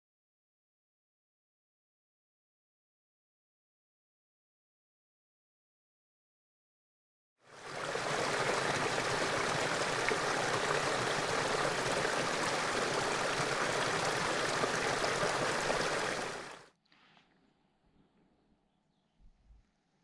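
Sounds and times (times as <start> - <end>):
running water: 7.5 - 16.7.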